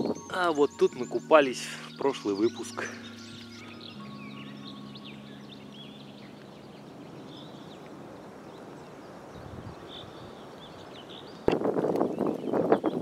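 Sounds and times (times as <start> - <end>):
river hissing: 0.0 - 11.8
breeze: 0.0 - 12.8
small birds chirping: 0.0 - 13.0.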